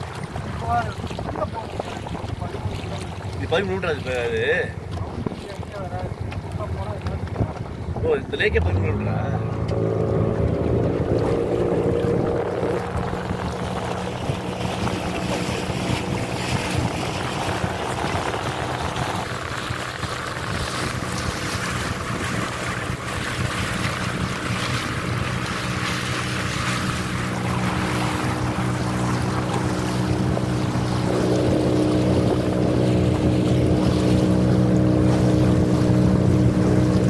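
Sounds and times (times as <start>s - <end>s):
motorboat engine running: 0.0s - 37.0s
water hissing along hull: 10.7s - 37.0s.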